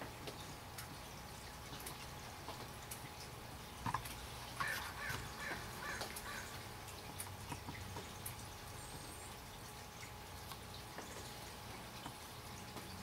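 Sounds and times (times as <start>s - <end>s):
crow cawing: 4.6s - 6.6s.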